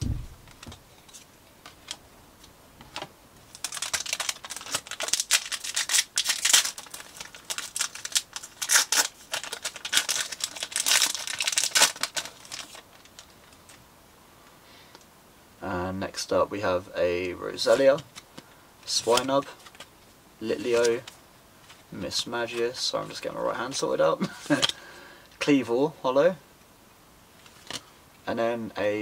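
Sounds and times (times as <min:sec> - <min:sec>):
foil wrapper crinkling: 0:03.5 - 0:13.8.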